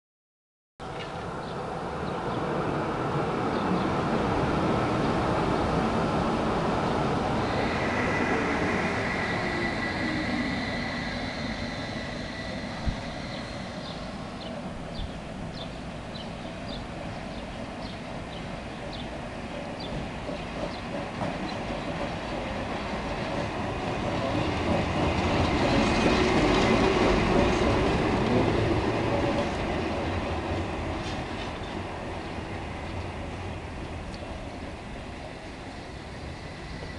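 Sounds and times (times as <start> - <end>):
tramcar rolling past: 0.8 - 36.9
tram whine and motor hum: 0.9 - 36.9
light ticks from rails: 33.8 - 34.4.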